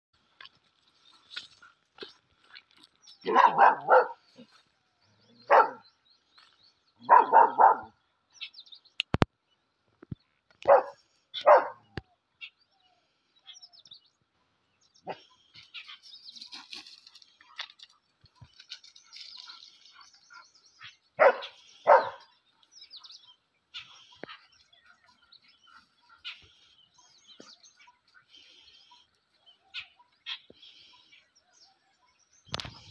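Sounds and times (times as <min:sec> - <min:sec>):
birds chirping: 0:00.4 - 0:32.9
dog barking: 0:03.2 - 0:04.2, 0:05.5 - 0:05.8, 0:07.0 - 0:08.0, 0:10.6 - 0:11.9, 0:21.2 - 0:22.3.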